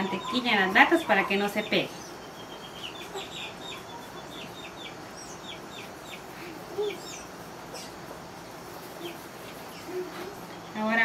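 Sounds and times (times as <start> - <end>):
chickens clucking: 0.0 - 11.0.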